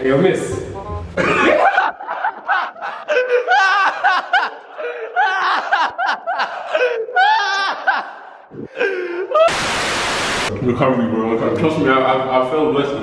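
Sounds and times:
young man laughing hard: 1.2s - 9.6s.

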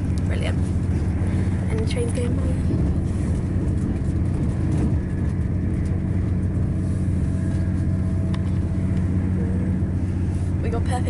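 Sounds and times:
faint whine: 0.0s - 11.0s
train rumble inside carriage: 0.0s - 11.0s.

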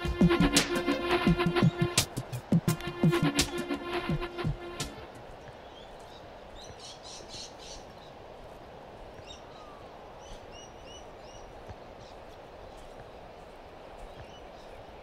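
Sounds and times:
steady background hiss: 0.0s - 15.0s
small birds chirping: 5.3s - 8.2s, 9.1s - 15.0s.

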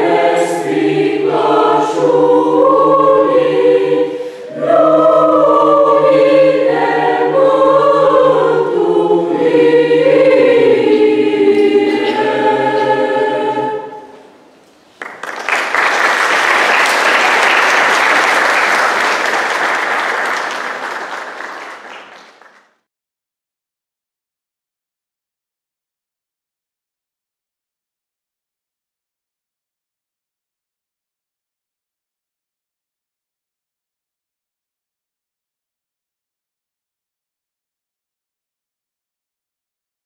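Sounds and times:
choir singing unaccompanied: 0.0s - 14.3s
audience applause: 15.0s - 22.7s.

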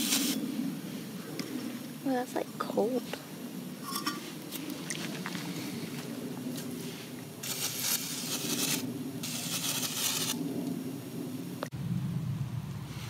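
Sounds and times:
aerosol spray hissing: 0.0s - 0.4s, 7.4s - 10.4s.

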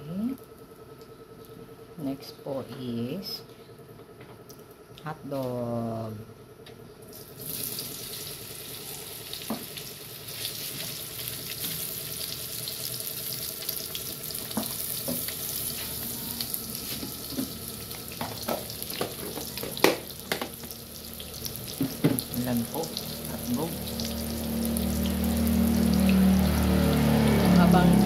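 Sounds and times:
hot dogs sizzling in oil: 7.2s - 28.0s.

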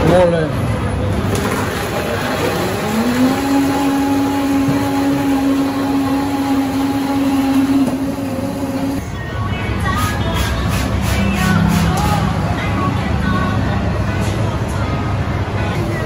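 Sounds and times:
street traffic: 0.0s - 16.0s
electric blender running: 2.0s - 9.0s.

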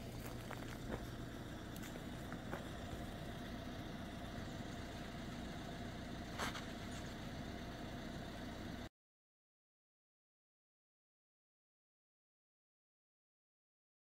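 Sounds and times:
engine idling hum: 0.0s - 8.9s.

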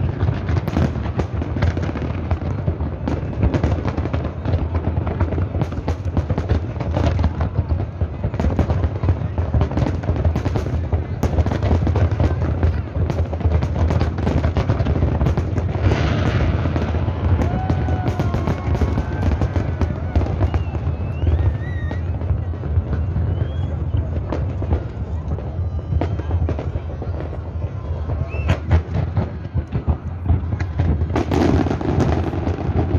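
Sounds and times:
fireworks bursting: 0.0s - 32.9s
firework whistles: 16.1s - 26.8s, 27.8s - 29.0s.

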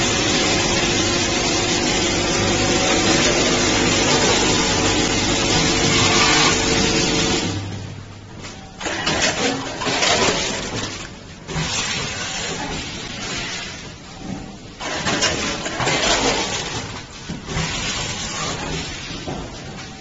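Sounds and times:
packing machine mechanical rush: 14.8s - 19.6s.

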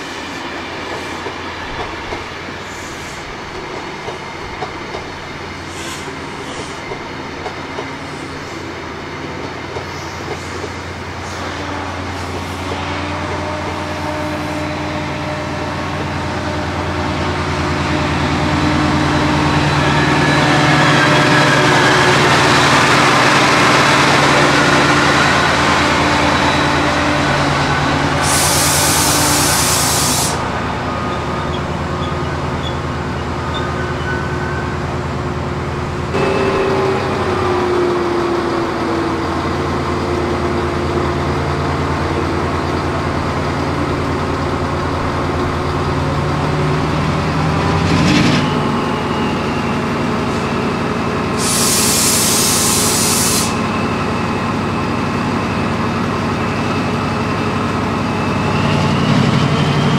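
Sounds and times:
air brakes hissing: 5.6s - 6.8s, 28.2s - 30.5s, 51.4s - 53.7s.

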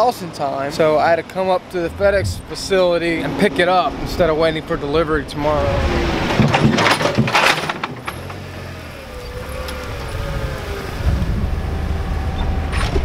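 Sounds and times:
forklift engine rumble: 0.8s - 6.4s.

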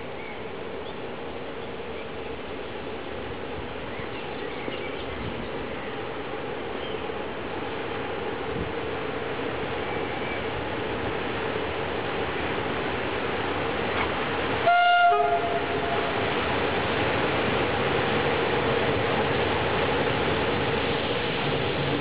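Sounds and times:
locomotive horn blast: 14.6s - 16.1s.

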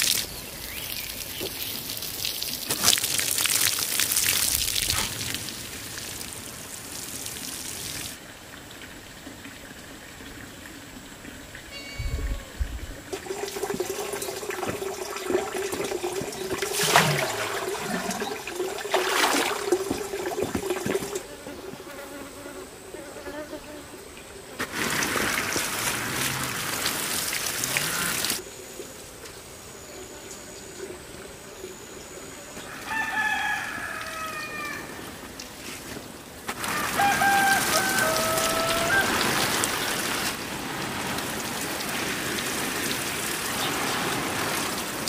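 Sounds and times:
water pouring from watering can: 0.0s - 21.3s, 24.6s - 28.4s, 36.5s - 45.0s
rooster crowing: 32.6s - 35.0s, 36.6s - 39.6s.

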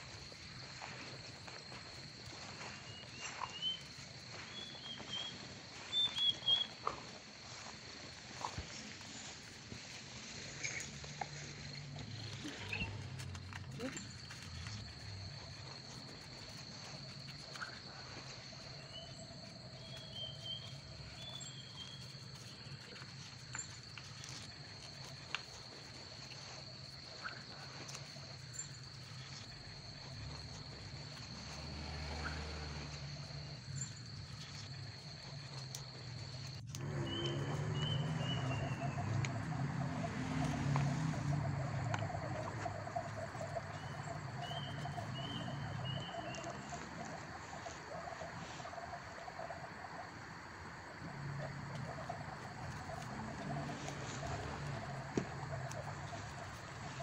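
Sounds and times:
high insect drone: 0.0s - 57.0s
bird chirps: 2.7s - 6.8s, 36.8s - 39.2s, 42.3s - 47.1s.

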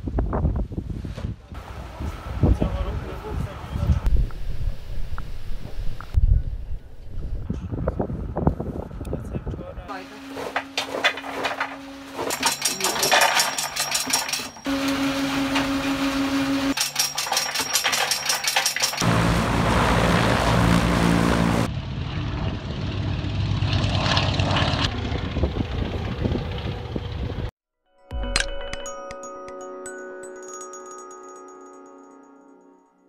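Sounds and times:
radial aircraft engine droning: 9.9s - 17.4s, 19.0s - 27.5s
rapid clatter of dispensing drum: 10.5s - 14.7s, 16.7s - 19.0s.

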